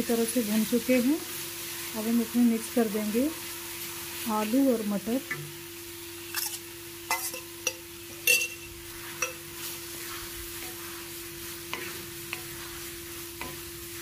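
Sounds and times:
spatula stirring sizzling paste: 6.0 - 14.0.

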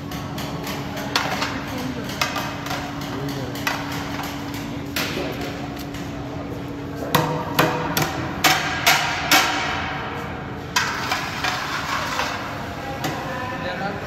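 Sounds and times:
spatula scraping steel pan: 10.8 - 12.6.

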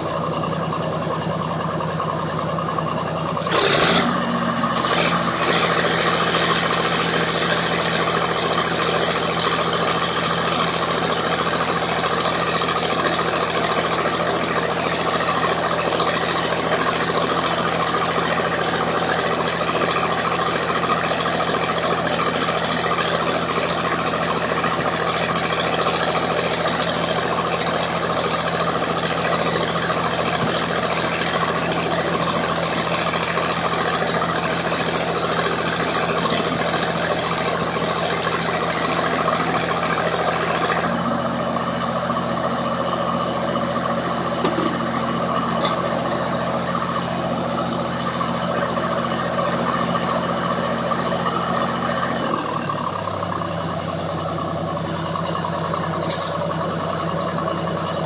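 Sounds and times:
diesel engine running: 0.0 - 58.0
welding arc hiss and crackle: 3.4 - 40.9.

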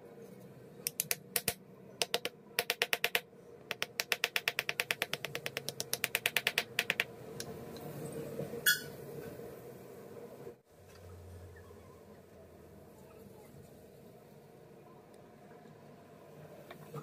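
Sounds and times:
faint hum: 0.0 - 17.0.

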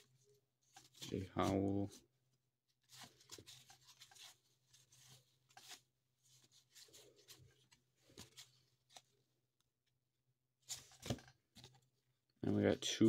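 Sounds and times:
cardboard cards sliding and scraping: 2.8 - 9.2, 10.6 - 11.8.

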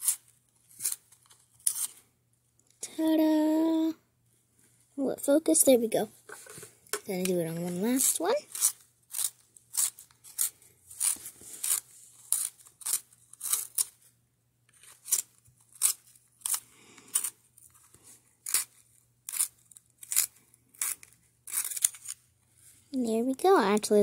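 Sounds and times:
pencil sharpener scraping: 0.0 - 2.0, 6.3 - 14.0, 14.8 - 17.8, 18.4 - 22.2.

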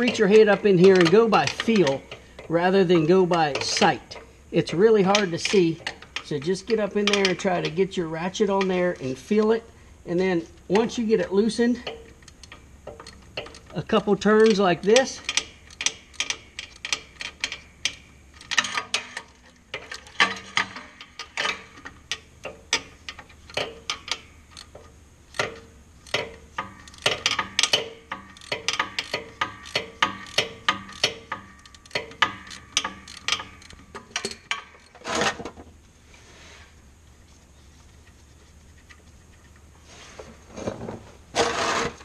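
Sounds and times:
socket ratchet clicking: 0.0 - 9.6, 10.6 - 35.0
loud scraping noise: 39.8 - 42.0.

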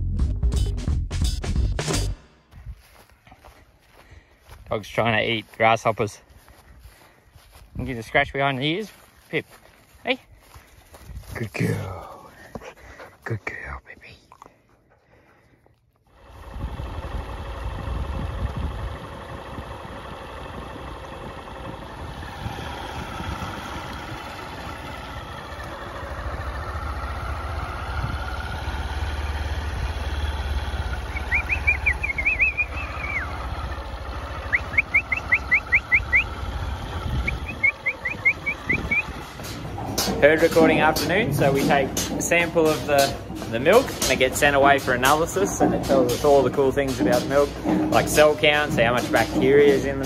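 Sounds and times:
engine running at low revs: 1.5 - 12.8, 16.0 - 50.0
rapid high chirps: 31.0 - 33.4, 34.4 - 36.4, 37.2 - 39.3.

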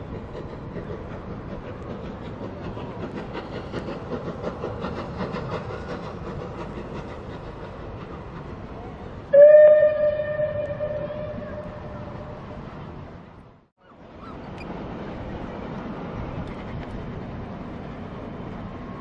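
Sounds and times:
steam train rumbling past: 0.0 - 19.0
steam whistle blast: 9.3 - 12.4.

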